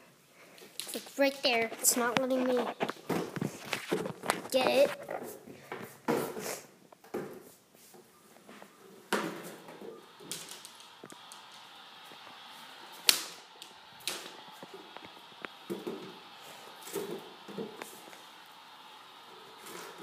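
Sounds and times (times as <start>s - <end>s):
phone handling bumps and rustles: 1.8s - 6.4s.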